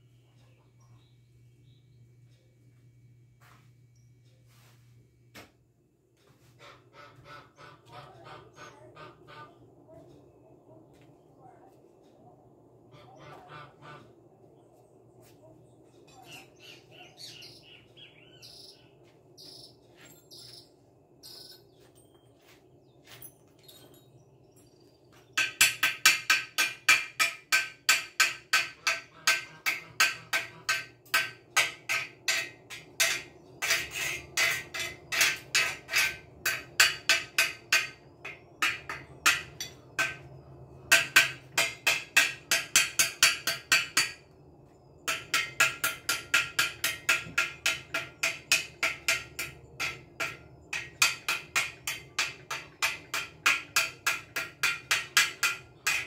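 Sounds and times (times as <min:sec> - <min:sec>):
hammer striking metal: 0:25.4 - 0:44.2, 0:45.1 - 0:56.0.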